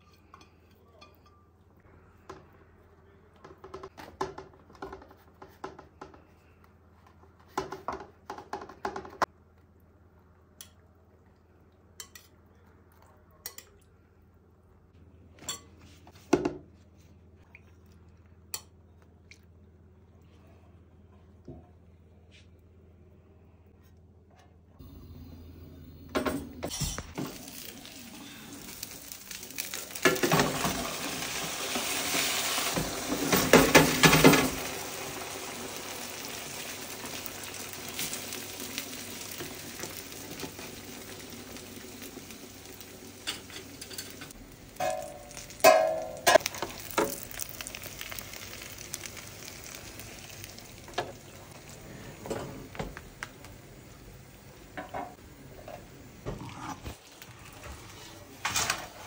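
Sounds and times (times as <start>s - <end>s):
oil sizzling in a pan: 26.8s - 56.4s.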